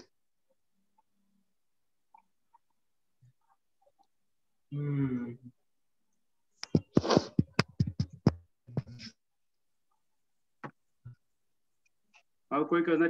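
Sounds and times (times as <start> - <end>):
fingertips tapping on face: 6.6 - 9.1.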